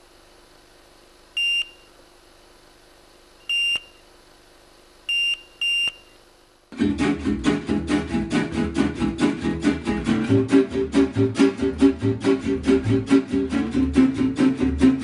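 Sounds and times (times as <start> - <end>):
faint steady hum: 0.0 - 15.0
short high electronic beeps: 1.4 - 1.9, 3.4 - 4.0, 5.1 - 6.2.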